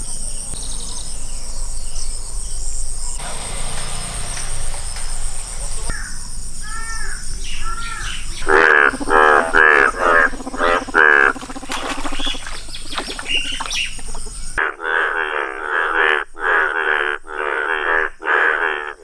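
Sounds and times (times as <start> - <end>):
bullfrogs croaking: 5.8 - 19.0.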